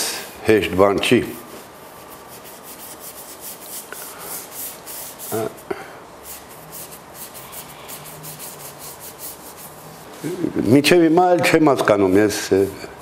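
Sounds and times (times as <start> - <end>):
paintbrush scrubbing on canvas: 1.3 - 10.3.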